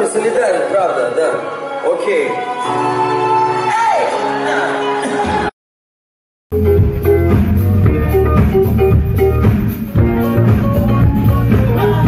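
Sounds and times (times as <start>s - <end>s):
bass line: 6.5s - 12.0s
drums: 6.5s - 12.0s
live band music: 6.5s - 12.0s.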